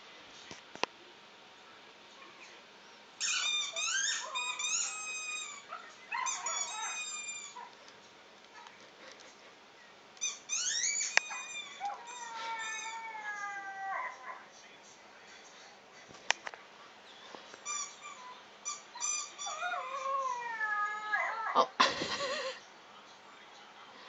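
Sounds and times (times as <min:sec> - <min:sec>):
small dog whining and yelping: 0:03.2 - 0:07.7, 0:10.2 - 0:14.4, 0:17.7 - 0:21.8.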